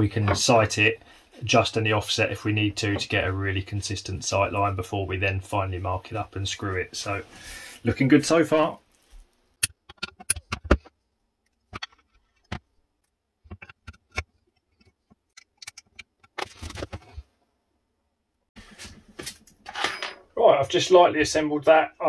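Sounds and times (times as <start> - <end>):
rubbing and scraping: 8.9 - 12.8, 13.4 - 17.4.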